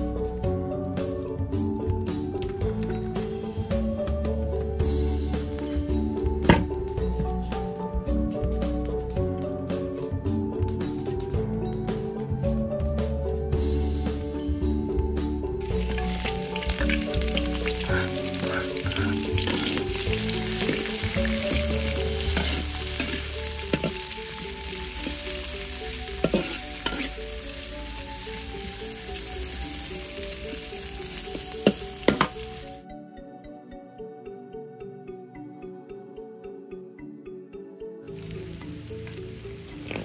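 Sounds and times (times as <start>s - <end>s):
soft background music: 0.0s - 40.0s
food sizzling in hot oil: 15.6s - 32.8s, 38.1s - 40.0s
metal spatula clinking on pan: 26.2s - 27.2s.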